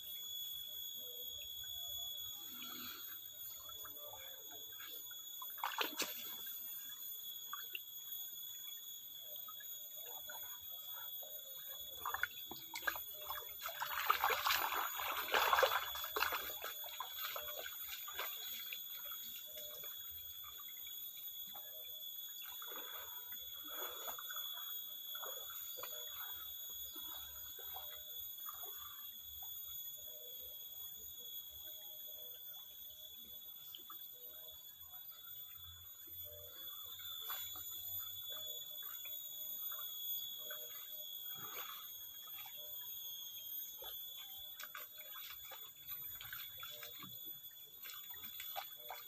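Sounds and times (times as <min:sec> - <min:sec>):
steady high-pitched tones: 0:00.0 - 0:49.0
stream trickling over rocks: 0:11.6 - 0:21.2, 0:44.4 - 0:49.0.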